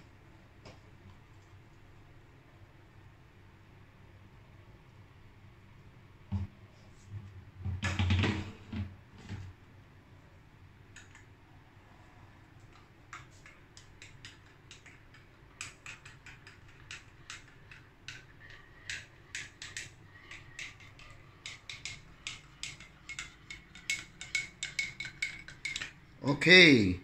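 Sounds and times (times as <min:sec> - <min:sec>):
spoon clinking in ceramic mug: 0:21.4 - 0:26.0.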